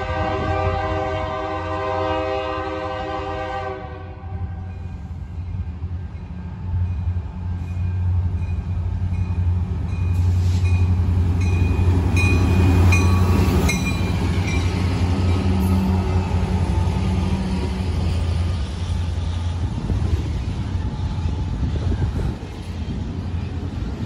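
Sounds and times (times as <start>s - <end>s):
train horn: 0.0s - 4.8s
diesel locomotive rumble: 0.0s - 24.0s
crossing bell ringing: 6.8s - 16.4s.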